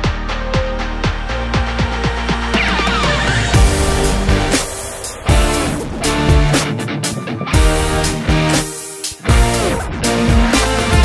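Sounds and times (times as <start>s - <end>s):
low rhythmic thumps: 0.1s - 11.0s
guitar music: 2.5s - 11.0s.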